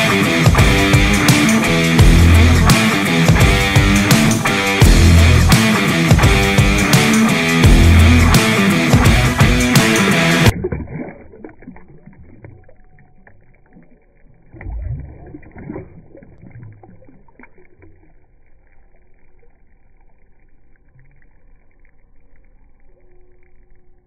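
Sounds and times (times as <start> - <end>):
water splashing and sloshing: 9.0 - 23.0.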